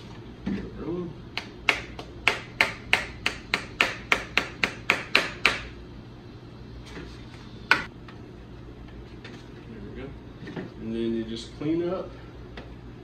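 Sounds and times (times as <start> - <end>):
hammer tapping: 1.4 - 5.7.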